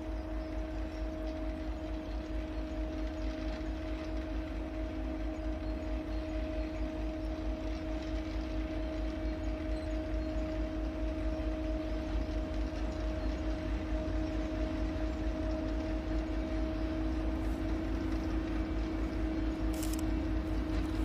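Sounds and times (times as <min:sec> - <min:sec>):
diesel locomotive engine drone: 0:00.0 - 0:21.0.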